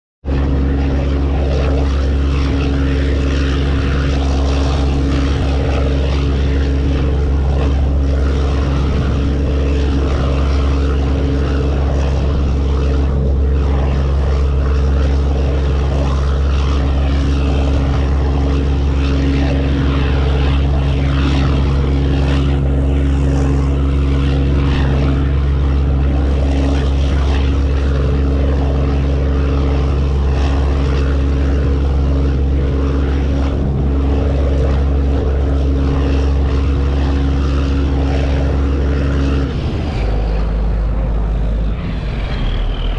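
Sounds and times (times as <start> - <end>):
ferry engine drone: 0.2 - 42.9
rushing churning wake: 0.3 - 42.9.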